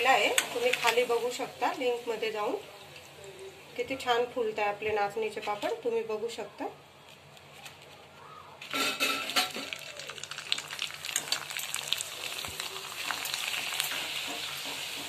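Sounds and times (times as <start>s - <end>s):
papad sizzling in hot oil: 0.0s - 4.0s, 8.6s - 15.0s.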